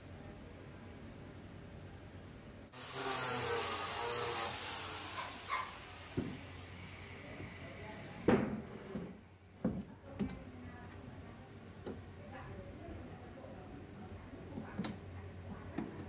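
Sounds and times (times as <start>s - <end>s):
power drill running: 2.8s - 6.2s.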